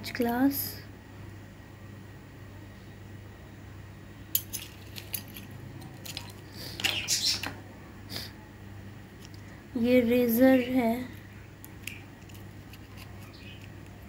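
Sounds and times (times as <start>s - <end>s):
metal instruments clinking in a tin: 4.4s - 6.4s.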